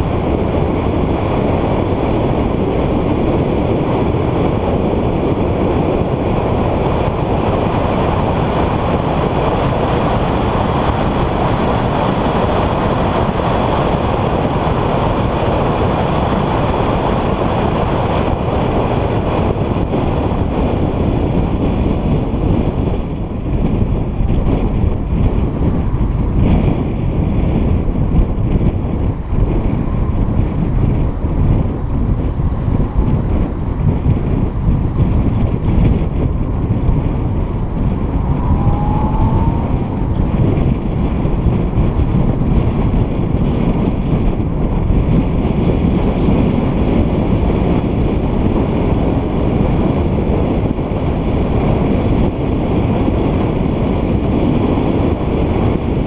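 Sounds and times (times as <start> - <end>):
wind noise: 0.0 - 56.0
car engine: 31.0 - 44.8.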